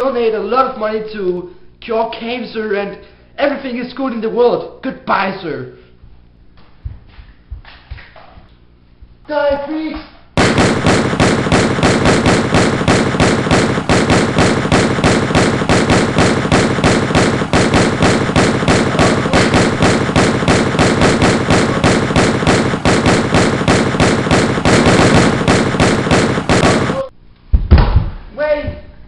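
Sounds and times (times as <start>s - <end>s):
automatic gunfire: 10.4s - 27.1s.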